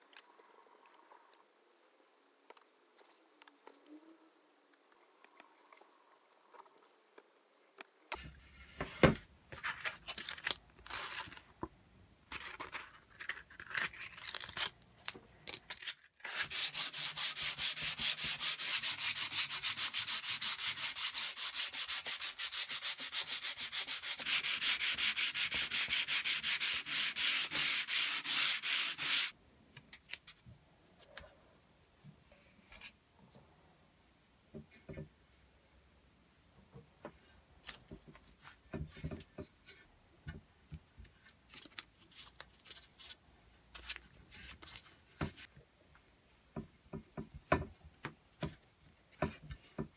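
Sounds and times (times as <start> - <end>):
sandpaper scraping wood: 16.2 - 29.4.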